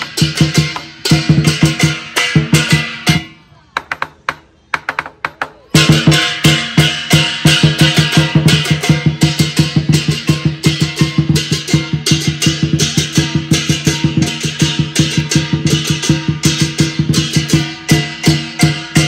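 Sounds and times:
large drum beating fast: 5.7 - 19.0
hand cymbals crashing: 5.8 - 19.0.

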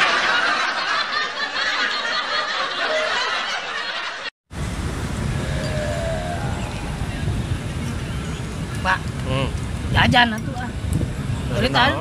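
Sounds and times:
snickering and chuckling laughter: 0.0 - 4.3
faint outdoor background noise: 0.0 - 12.0.

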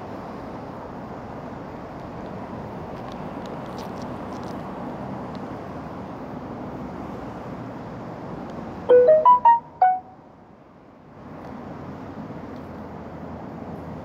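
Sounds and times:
short electronic melody: 8.9 - 10.2.

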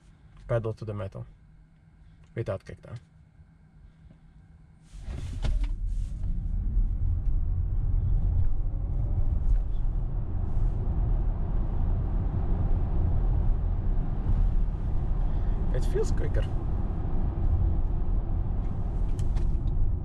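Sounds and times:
low rumble of tyres and road: 4.9 - 20.0.

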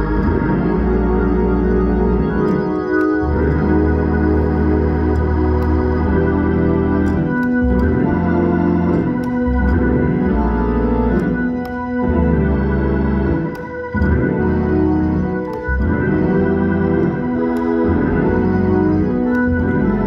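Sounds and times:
organ chords over deep bass: 0.0 - 20.0.

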